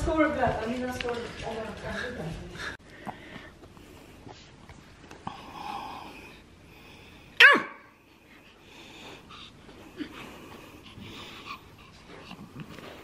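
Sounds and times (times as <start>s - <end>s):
small dog yapping: 7.4s - 7.9s.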